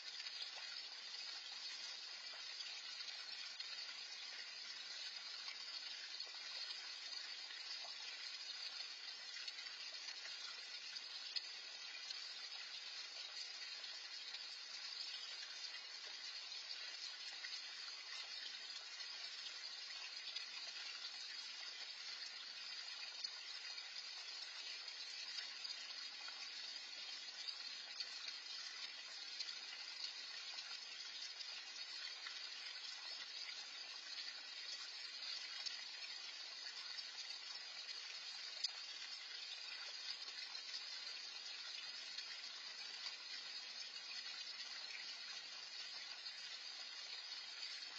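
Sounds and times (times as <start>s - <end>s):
fountain water splashing: 0.0s - 1.4s.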